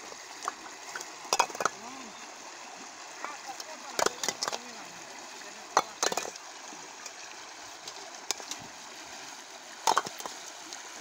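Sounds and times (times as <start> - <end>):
floodwater rushing: 0.0 - 11.0
sharp knocks or splashes: 0.4 - 2.0, 3.2 - 4.8, 5.7 - 6.4, 9.8 - 10.4.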